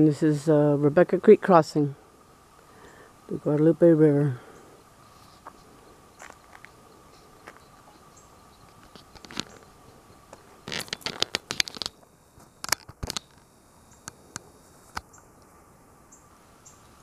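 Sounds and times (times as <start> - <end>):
footsteps on loose stones: 5.4 - 6.8, 8.7 - 9.7, 10.3 - 13.4.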